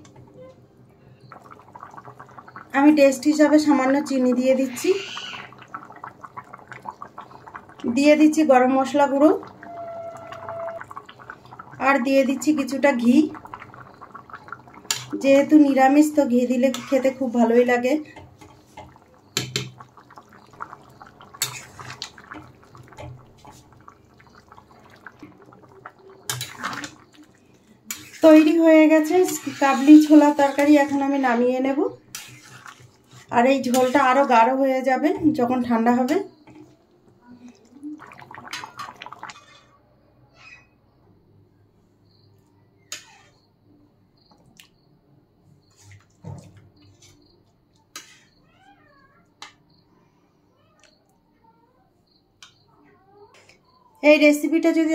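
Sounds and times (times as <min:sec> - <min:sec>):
soft wet drips: 0:00.0 - 0:17.4, 0:18.0 - 0:28.2, 0:32.1 - 0:39.6, 0:44.2 - 0:44.9, 0:45.5 - 0:48.2
curry bubbling in a pot: 0:00.0 - 0:39.7, 0:42.8 - 0:43.5.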